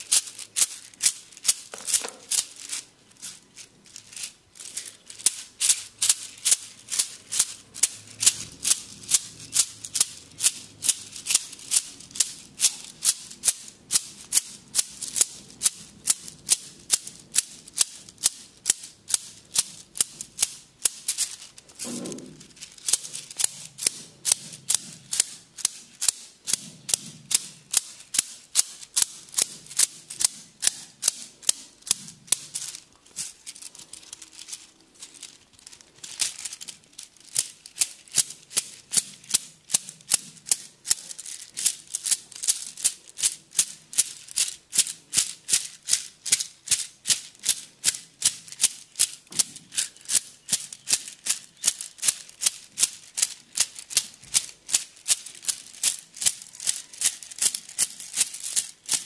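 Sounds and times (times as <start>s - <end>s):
bamboo sticks clacking: 0.0s - 59.0s.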